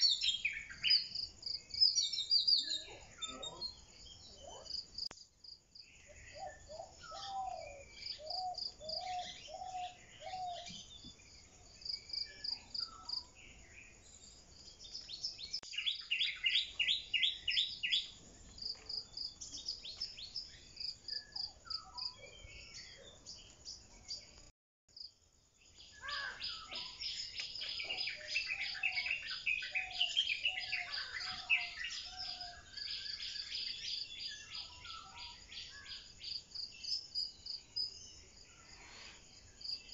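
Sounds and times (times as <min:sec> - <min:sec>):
birds singing and calling: 0:00.0 - 0:05.0, 0:05.8 - 0:24.5, 0:25.7 - 0:39.9
cricket chirping: 0:00.0 - 0:39.9.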